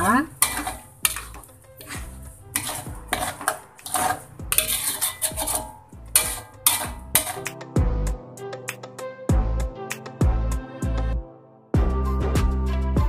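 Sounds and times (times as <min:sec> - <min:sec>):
metal utensil scraping cookware: 0:00.0 - 0:07.5.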